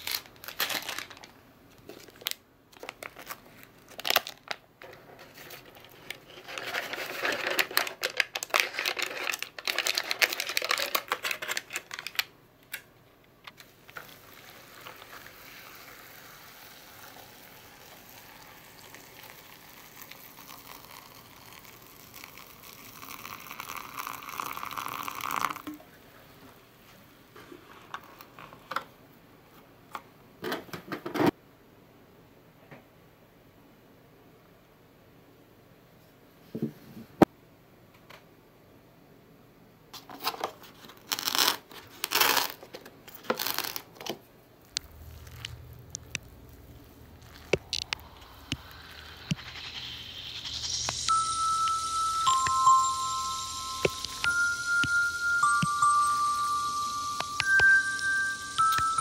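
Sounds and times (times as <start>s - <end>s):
foil packet crinkling: 0.0s - 12.8s, 40.0s - 51.1s
flakes pattering into cup: 14.0s - 25.6s, 44.7s - 59.0s
water pouring from kettle: 14.1s - 25.6s.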